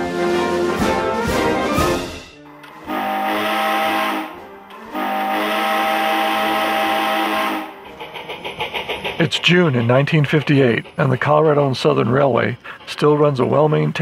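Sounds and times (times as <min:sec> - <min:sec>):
steam locomotive chime whistle: 0:01.7 - 0:08.1.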